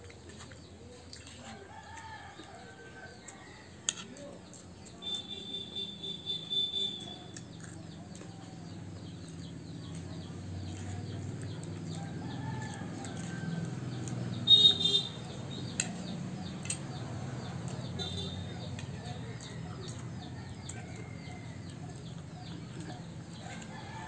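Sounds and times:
birds calling: 0:04.5 - 0:24.0
bird chirps: 0:04.8 - 0:10.1, 0:14.4 - 0:16.8
spoons clicking against plates: 0:06.3 - 0:23.9.

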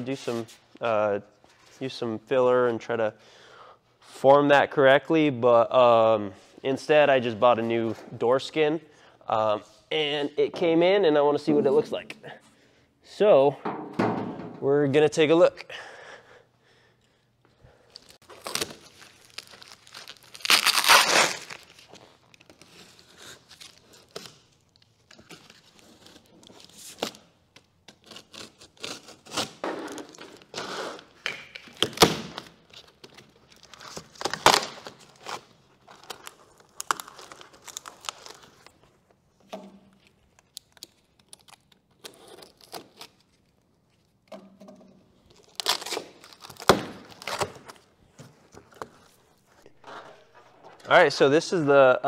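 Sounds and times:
box thunks: 0:13.6 - 0:14.6
cardboard crinkling: 0:17.9 - 0:29.4, 0:32.6 - 0:39.1
packing tape ripping: 0:17.9 - 0:38.8, 0:39.9 - 0:44.2, 0:45.2 - 0:47.9.

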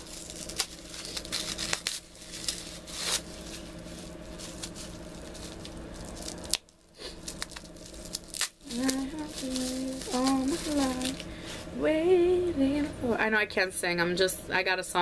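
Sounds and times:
packaging rustling and tearing: 0:00.0 - 0:11.3
steady low hum: 0:00.0 - 0:15.0.

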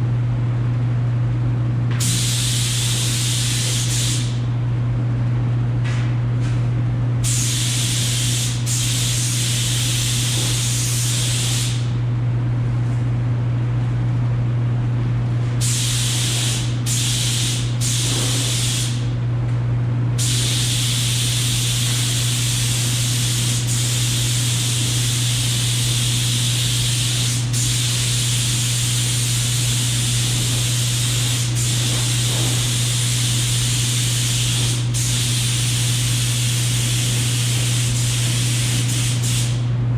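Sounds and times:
steady low hum: 0:00.0 - 0:39.9
air spray gun hissing: 0:02.0 - 0:04.4, 0:07.2 - 0:12.0, 0:15.6 - 0:19.1, 0:20.2 - 0:39.6.

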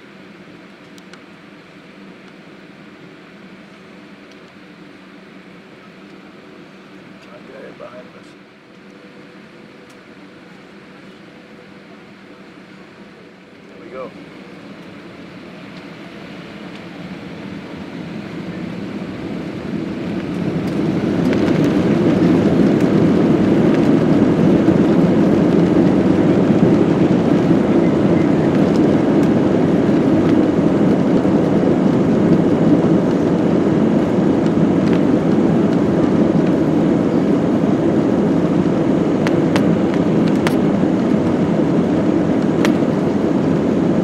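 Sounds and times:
jet engines spooling up: 0:06.4 - 0:44.0.

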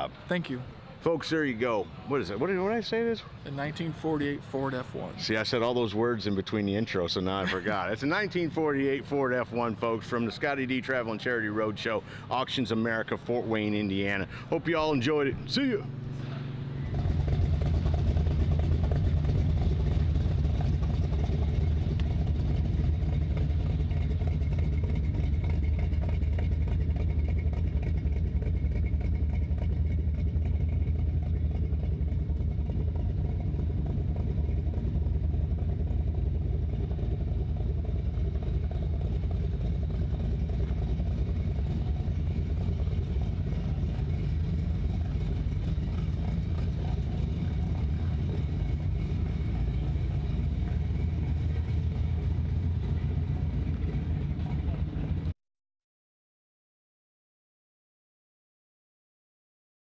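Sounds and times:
truck engine running at low speed: 0:00.0 - 0:55.4.

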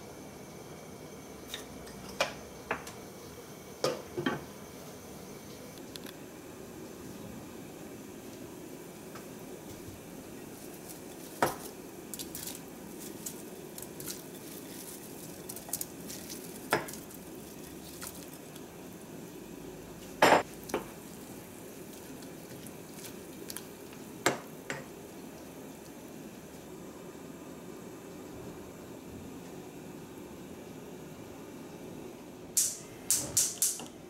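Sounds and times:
water boiling: 0:06.3 - 0:31.7.

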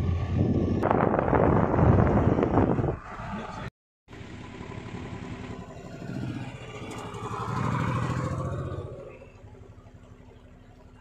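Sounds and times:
vehicle engine running: 0:04.1 - 0:11.0.

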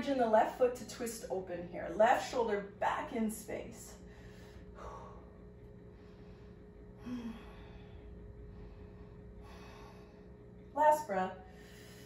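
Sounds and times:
woman breathing: 0:04.0 - 0:10.7, 0:11.4 - 0:12.0.

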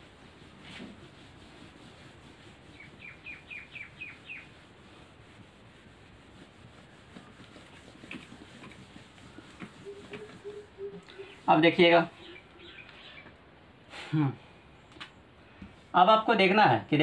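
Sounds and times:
duster wiping a whiteboard: 0:00.0 - 0:12.8
small bird chirping: 0:02.7 - 0:04.5, 0:09.8 - 0:13.4.

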